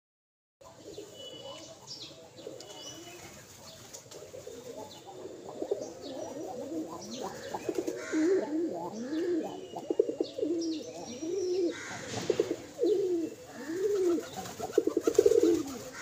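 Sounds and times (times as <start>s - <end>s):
pigeons cooing: 0.6s - 16.0s
small birds chirping: 0.6s - 16.0s
wings flapping: 13.7s - 16.0s.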